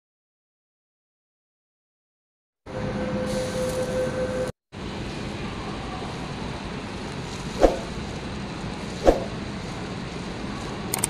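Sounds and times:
hum: 2.7s - 10.9s
metro station background noise: 2.7s - 11.0s.

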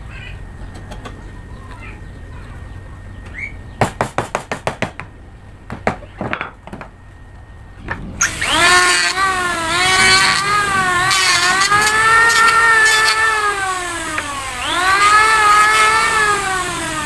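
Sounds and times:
electric planer whining: 7.8s - 17.0s.

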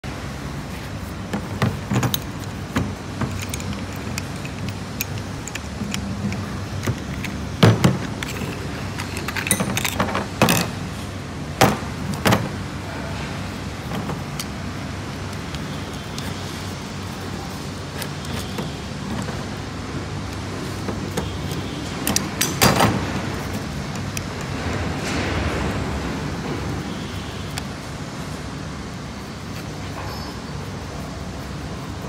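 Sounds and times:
metal parts clicking and knocking: 1.2s - 12.7s, 13.6s - 27.7s.

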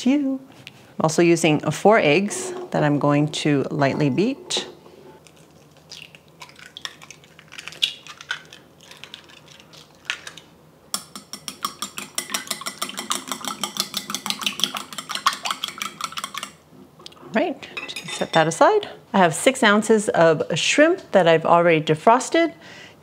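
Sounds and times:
utensil clinking against bowl: 11.0s - 16.6s.

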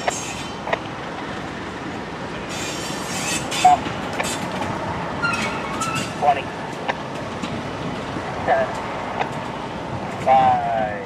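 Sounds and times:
freight cars rumbling on rails: 0.0s - 11.0s
wheel squeal: 2.5s - 4.5s, 5.2s - 6.2s.

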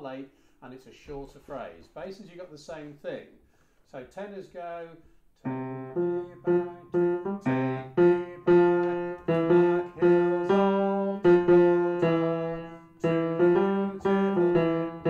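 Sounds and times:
slow piano notes: 5.4s - 15.0s.

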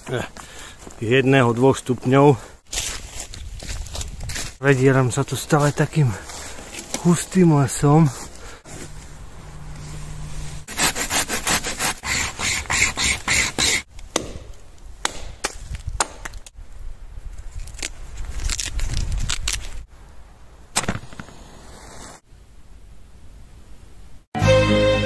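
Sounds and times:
undergrowth rustling: 0.0s - 10.7s, 15.5s - 19.9s
dry twigs snapping and crackling: 17.4s - 19.8s.

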